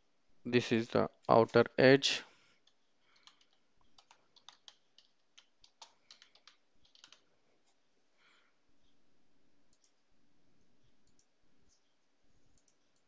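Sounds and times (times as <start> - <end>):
faint steady hiss: 0.0 - 13.0
keyboard typing: 2.6 - 7.8, 9.6 - 10.1, 10.7 - 13.0.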